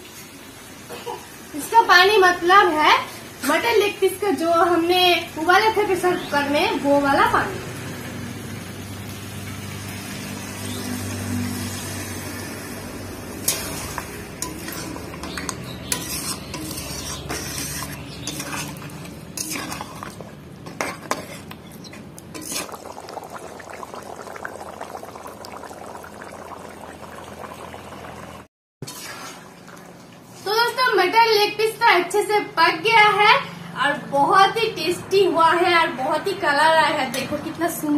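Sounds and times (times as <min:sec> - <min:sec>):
stock sizzling in hot pan: 0:00.0 - 0:29.4
ladle scraping metal pan: 0:13.4 - 0:22.8, 0:28.8 - 0:29.4.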